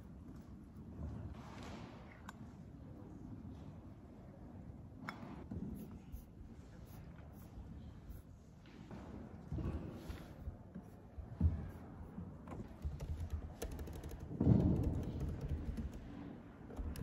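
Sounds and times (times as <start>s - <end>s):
keyboard key clicks: 12.6s - 17.0s.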